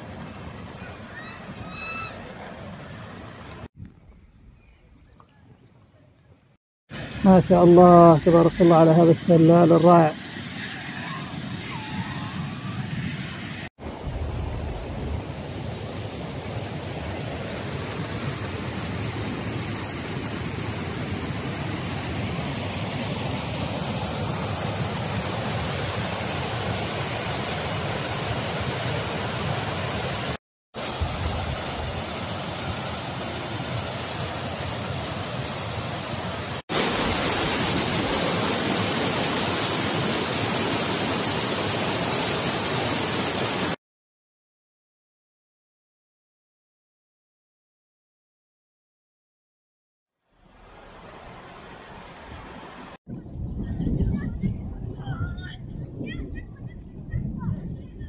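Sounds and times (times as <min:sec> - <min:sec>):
waterfall splashing onto rocks: 0:24.8 - 0:43.8.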